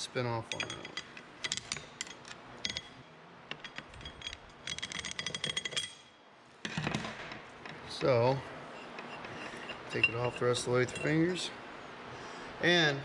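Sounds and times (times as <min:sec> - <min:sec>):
screwdrivers clinking on metal: 0:00.5 - 0:06.2
metallic clicks: 0:03.5 - 0:06.1.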